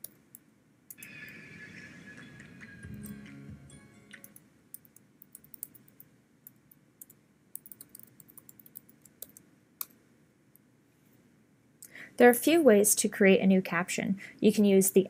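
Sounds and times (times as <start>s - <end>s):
computer keyboard clicking: 4.1s - 9.4s.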